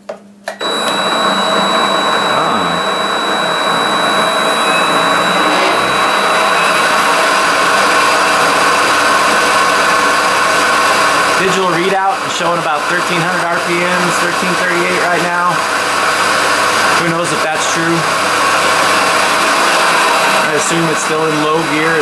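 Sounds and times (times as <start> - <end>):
high-pitched whistle: 0.6 - 8.2
mini metal lathe running: 0.6 - 15.0.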